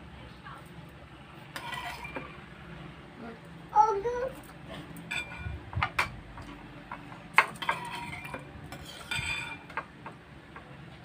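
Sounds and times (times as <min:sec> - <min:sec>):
spoons clinking against bowls: 0:05.1 - 0:09.9.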